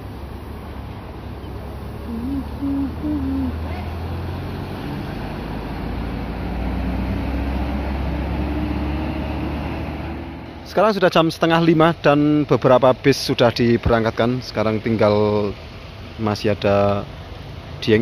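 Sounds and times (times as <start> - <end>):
bus diesel engine running: 0.0 - 18.0
horn playing stepped notes: 2.1 - 3.6.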